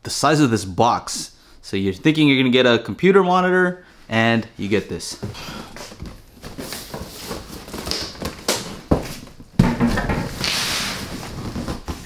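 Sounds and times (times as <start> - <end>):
plastic wrap rustling and crinkling: 5.9 - 12.0.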